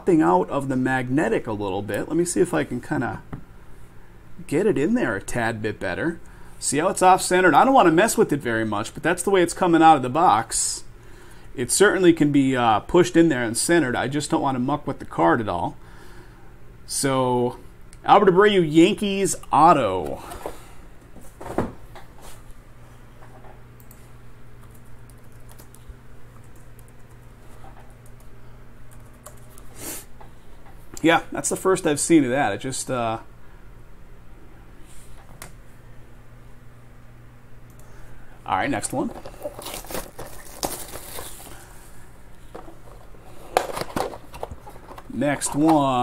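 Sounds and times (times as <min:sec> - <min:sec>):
plastic shrink wrap crinkling: 0:39.0 - 0:41.8.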